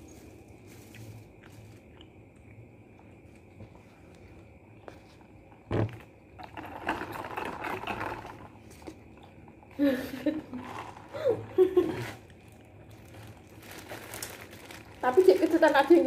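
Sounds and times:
paper wrappers rustling: 0:11.8 - 0:16.0.

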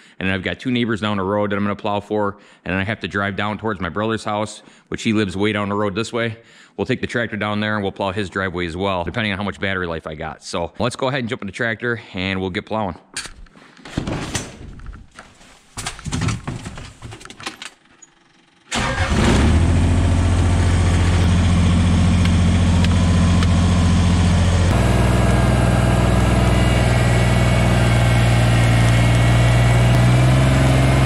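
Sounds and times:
knocks and rustling of door: 0:13.9 - 0:14.9, 0:15.8 - 0:17.6
diesel tractor engine running: 0:18.7 - 0:31.0.

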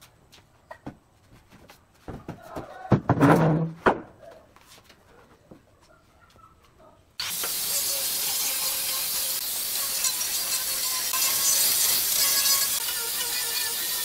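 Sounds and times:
wooden pallets knocking: 0:02.1 - 0:04.2
angle grinder sanding wood: 0:07.2 - 0:14.0.

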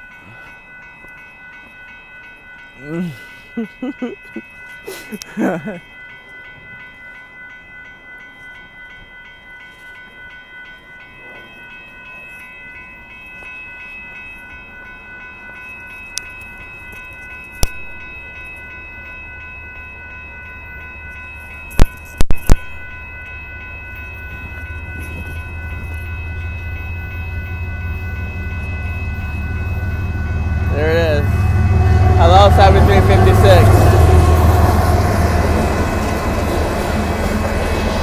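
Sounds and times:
crossing warning bell ringing: 0:00.0 - 0:38.0
train rumble: 0:13.3 - 0:38.0.

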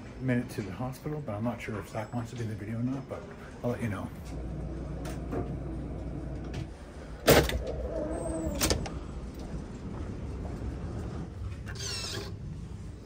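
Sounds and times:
elevator hum: 0:01.5 - 0:13.0
elevator doors sliding open: 0:03.8 - 0:12.9.

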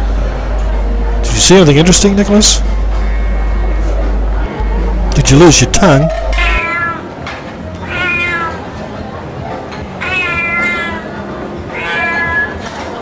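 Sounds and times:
low background murmur: 0:00.0 - 0:13.0
cat meowing: 0:05.9 - 0:07.1, 0:07.8 - 0:08.8, 0:10.0 - 0:11.1, 0:11.7 - 0:12.8.

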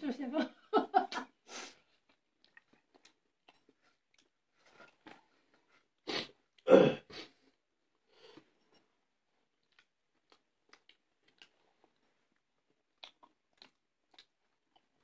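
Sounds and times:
person clearing throat: 0:06.6 - 0:07.1
eating noises: 0:09.6 - 0:15.0.

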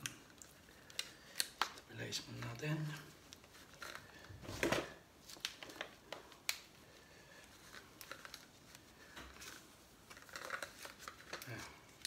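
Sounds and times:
sharp clicks and crackles: 0:00.0 - 0:02.6.

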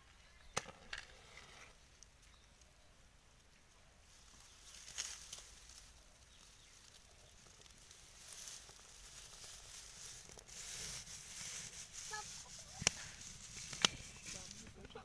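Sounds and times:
crackling straw fire: 0:00.0 - 0:15.0
dry straw rustling: 0:01.8 - 0:15.0.

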